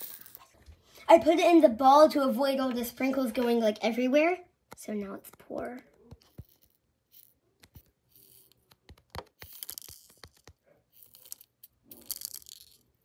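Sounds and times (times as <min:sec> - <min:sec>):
plastic beads pouring and rattling: 0:00.0 - 0:00.4, 0:09.4 - 0:13.0.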